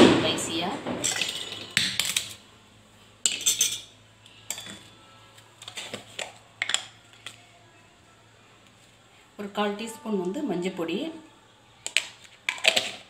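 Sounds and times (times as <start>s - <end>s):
metal spoon clinking on plate: 3.3s - 3.9s, 4.5s - 4.9s.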